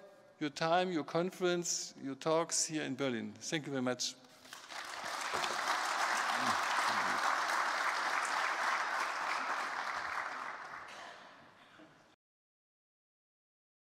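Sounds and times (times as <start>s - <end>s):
audience applauding: 4.5s - 11.2s.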